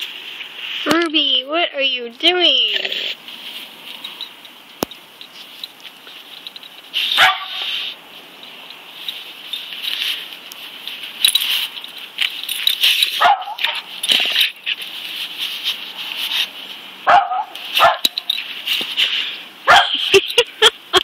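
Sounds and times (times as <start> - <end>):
dog coat rustling in grass: 5.2 - 16.8.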